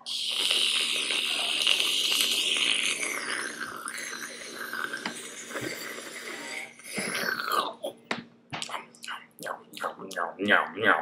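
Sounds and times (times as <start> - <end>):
cola crackling hiss over ice: 0.0 - 7.6.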